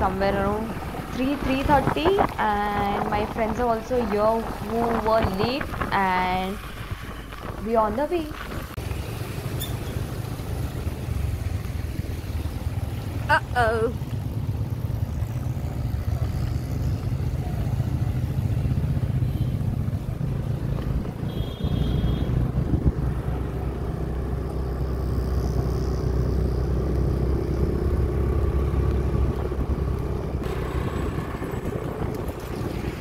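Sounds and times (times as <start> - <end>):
wind buffeting microphone: 0.0 - 8.8, 22.3 - 23.4, 27.6 - 33.0
motorcycle engine rumble: 0.0 - 33.0.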